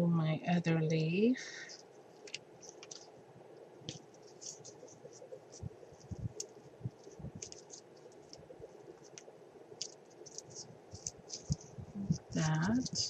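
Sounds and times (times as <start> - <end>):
hands clicking and rustling: 1.7 - 3.1, 3.8 - 13.0.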